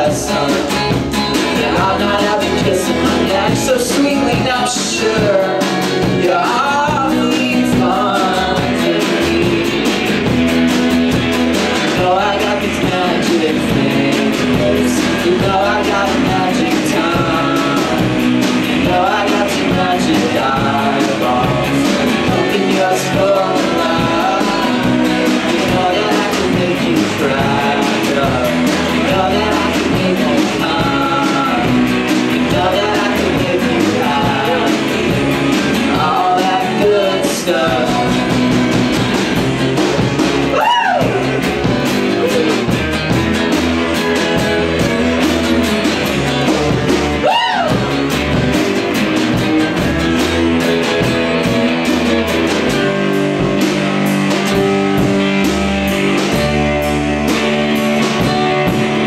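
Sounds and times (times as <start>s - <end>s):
person singing: 0.0s - 10.5s, 11.6s - 39.4s, 40.4s - 42.8s, 43.4s - 48.1s
acoustic guitar strumming: 0.0s - 59.0s
live rock band playing: 0.0s - 59.0s.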